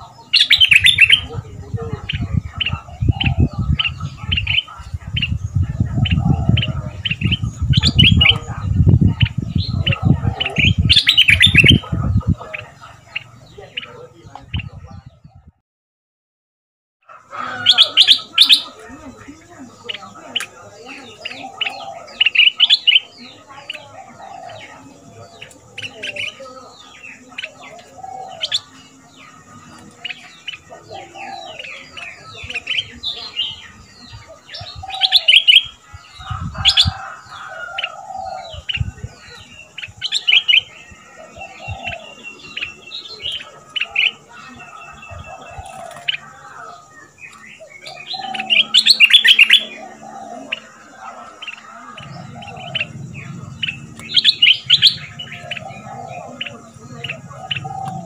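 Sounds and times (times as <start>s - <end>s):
bird chirping song: 0.0s - 15.6s, 17.0s - 58.0s
lower bird call: 17.0s - 58.0s.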